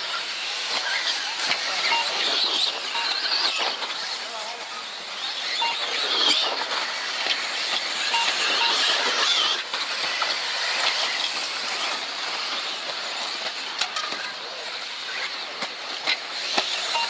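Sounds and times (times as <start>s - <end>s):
high-pitched whine of toy car motors: 0.0s - 17.0s.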